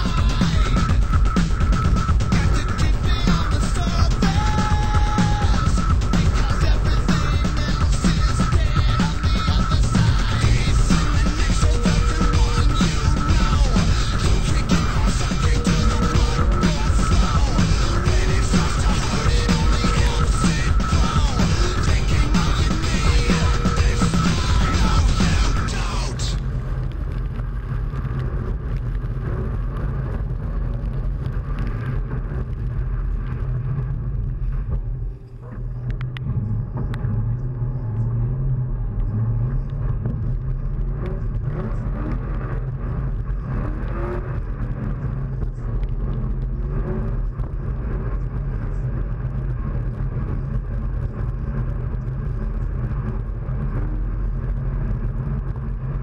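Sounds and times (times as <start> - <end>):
car engine under throttle: 35.6 - 56.0.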